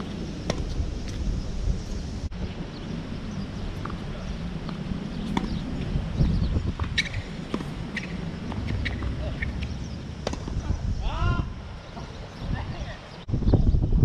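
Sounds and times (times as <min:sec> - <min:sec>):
wind rumbling on microphone: 0:00.0 - 0:14.0
tennis ball bouncing on court: 0:04.6 - 0:05.6, 0:06.2 - 0:10.6
tennis ball hit by rackets: 0:04.6 - 0:05.6, 0:06.8 - 0:10.6.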